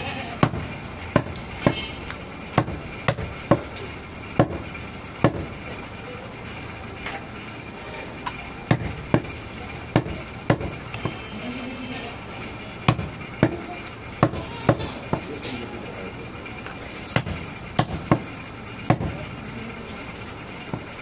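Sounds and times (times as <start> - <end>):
cleaver chopping on a block: 0.4 - 1.8, 2.6 - 3.7, 4.4 - 4.6, 5.2 - 5.5, 8.7 - 11.2, 12.9 - 13.6, 14.2 - 15.3, 17.1 - 18.3, 18.9 - 19.2.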